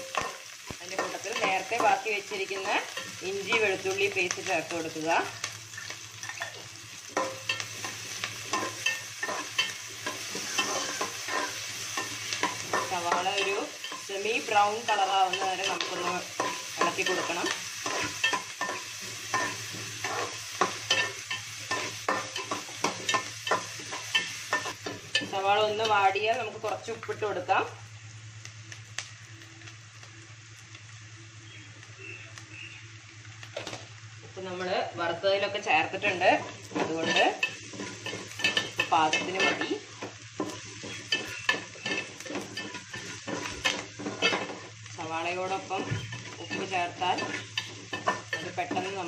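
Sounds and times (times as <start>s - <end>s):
onions sizzling in oil: 0.0s - 49.0s
metal ladle scraping a pot: 8.4s - 14.1s.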